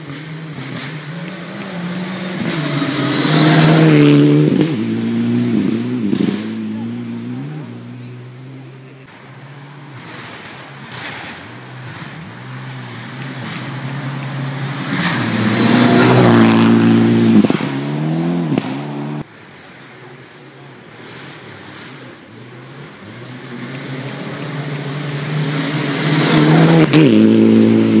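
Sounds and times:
gravel spraying: 0.0s - 4.0s, 10.0s - 17.1s, 20.0s - 27.3s
rally car engine at full throttle: 0.0s - 28.0s.

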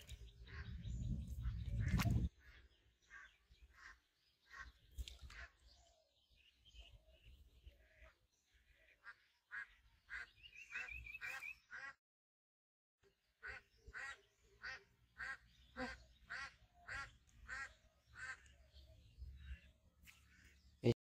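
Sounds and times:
short quack-like calls: 13.4s - 18.5s.

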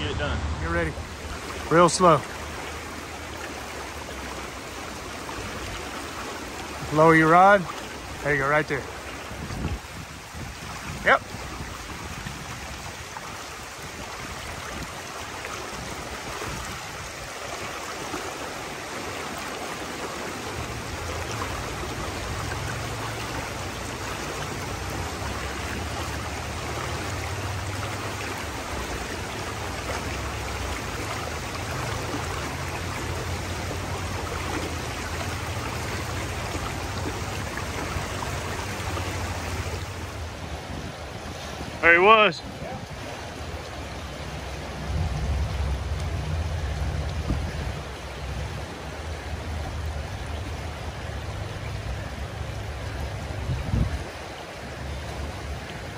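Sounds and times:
creek water flowing over rocks: 0.0s - 55.9s
low rumble: 44.2s - 49.6s.

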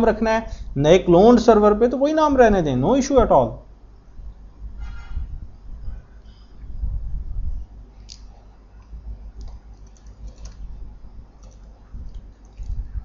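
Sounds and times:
steady low hum: 0.0s - 13.0s
low rumble: 4.1s - 8.0s
keyboard keystroke clicks: 8.0s - 10.7s, 11.4s - 12.8s.

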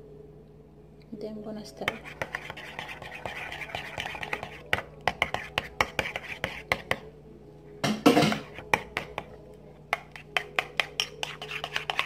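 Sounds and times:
spoon scraping ceramic bowl: 10.0s - 12.0s.

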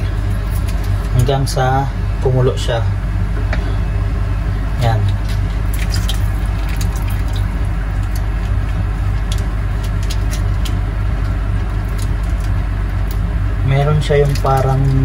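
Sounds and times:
low hum: 0.0s - 15.0s
liquid dripping into water: 5.0s - 13.3s, 14.2s - 15.0s
plastic packet crinkling: 5.3s - 13.2s.

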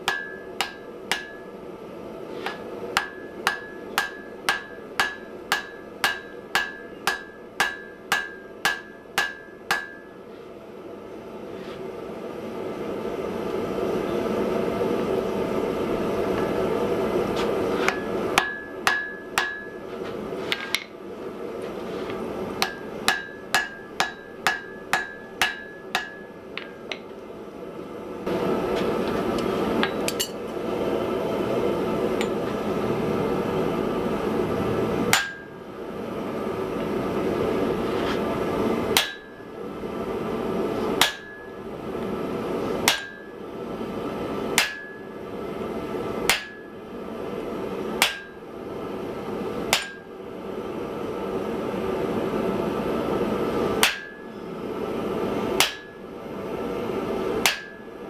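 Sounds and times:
hammer striking iron on anvil: 0.0s - 1.5s, 2.4s - 10.2s, 17.9s - 19.8s, 22.6s - 27.1s, 29.8s - 30.4s, 35.1s - 35.5s, 39.0s - 39.4s, 41.0s - 41.6s, 42.8s - 43.3s, 44.6s - 45.1s, 46.3s - 46.8s, 48.0s - 48.4s, 49.7s - 50.1s, 53.8s - 54.3s, 55.6s - 56.0s, 57.4s - 57.9s.

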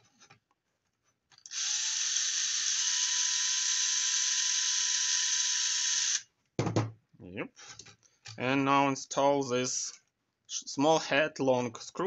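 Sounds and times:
cordless drill whining: 1.4s - 6.2s.

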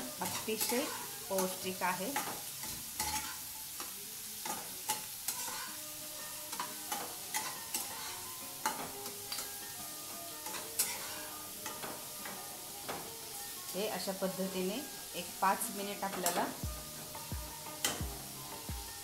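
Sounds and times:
metal spatula scraping a pan: 0.0s - 13.5s
food sizzling in a pan: 0.0s - 19.0s.

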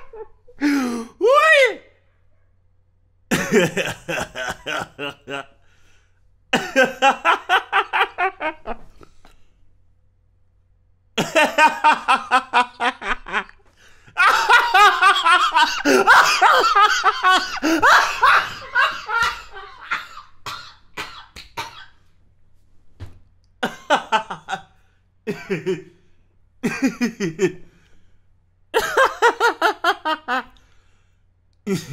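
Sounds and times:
man laughing: 0.0s - 1.8s, 3.3s - 5.6s, 6.6s - 9.2s, 11.2s - 20.2s, 23.6s - 24.7s, 25.3s - 26.0s, 26.6s - 27.7s, 28.8s - 30.5s, 31.7s - 31.9s.

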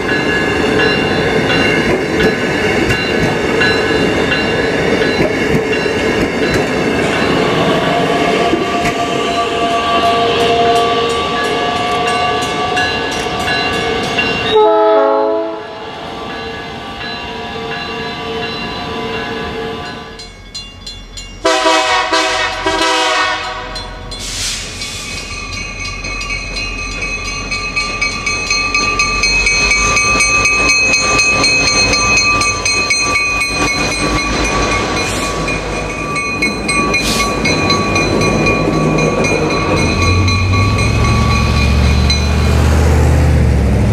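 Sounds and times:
electric train cars passing: 0.0s - 43.9s
train horn: 8.3s - 13.1s, 14.5s - 15.8s, 21.4s - 23.8s
diesel locomotive rumble: 20.6s - 43.9s
steady high tones: 23.8s - 42.9s.

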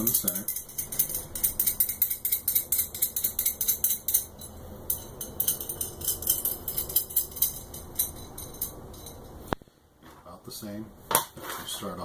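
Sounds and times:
nut rattling on threaded rod: 0.0s - 9.3s.

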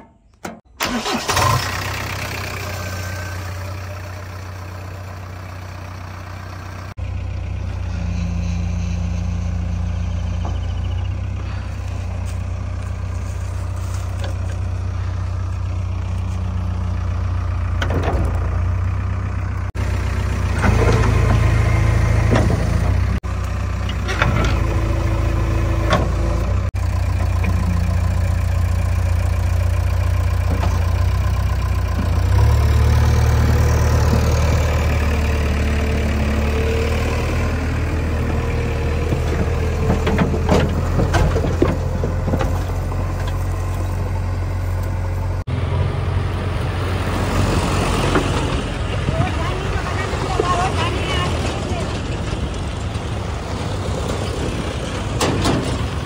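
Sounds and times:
diesel engine idling: 0.2s - 56.0s
knocks and clanks: 17.8s - 18.6s, 22.2s - 23.1s, 39.0s - 43.5s, 54.8s - 56.0s.

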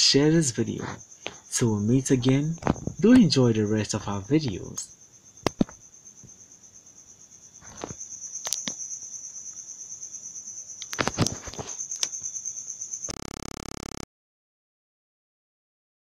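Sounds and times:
crickets trilling: 0.0s - 14.0s
sharp clicks: 5.4s - 5.8s.

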